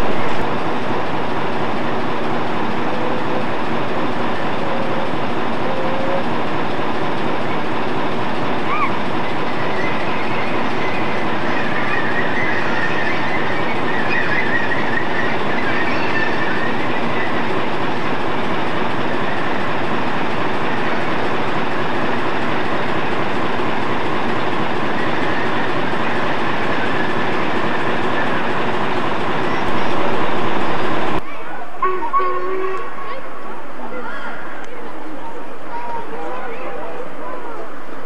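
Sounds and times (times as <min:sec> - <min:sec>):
steam train running past: 0:00.0 - 0:38.0
high wheel squeal: 0:08.6 - 0:17.9.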